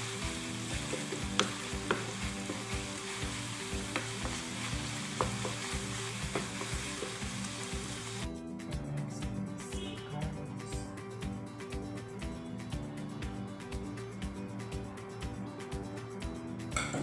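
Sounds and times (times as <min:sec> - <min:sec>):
chicken and onion sizzling in pan: 0:00.0 - 0:08.3.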